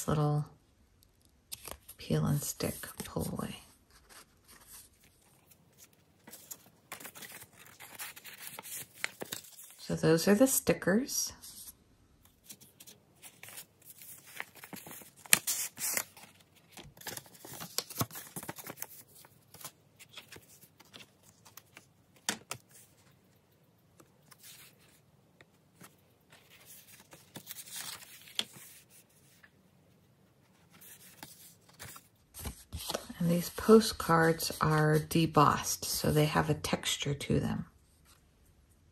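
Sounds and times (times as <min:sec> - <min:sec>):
paper rustling and sliding: 0:03.9 - 0:09.8, 0:12.3 - 0:23.2, 0:25.7 - 0:29.5, 0:30.5 - 0:33.8.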